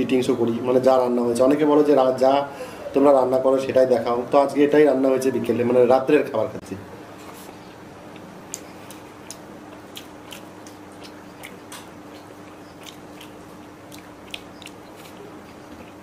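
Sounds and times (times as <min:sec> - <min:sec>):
steady low hum: 0:00.0 - 0:16.0
chewing and soft smacks: 0:07.2 - 0:16.0.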